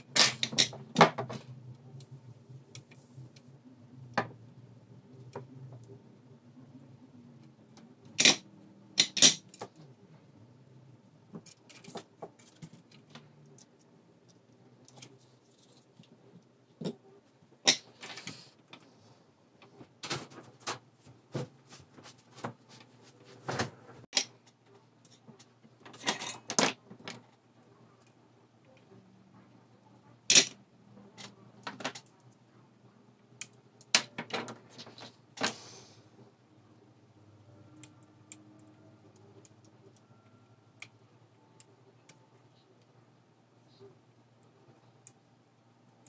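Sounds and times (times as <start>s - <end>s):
small tools clicking and clattering: 0.1s - 1.3s, 11.3s - 16.1s, 24.2s - 27.3s.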